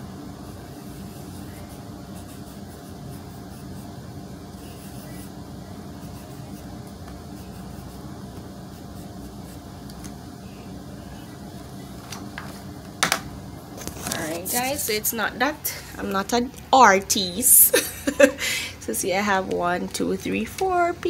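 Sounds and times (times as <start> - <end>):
mechanical room hum: 0.0 - 21.0
pencil scratching on paper: 0.5 - 4.0, 4.6 - 5.4, 6.0 - 8.1, 8.7 - 9.7.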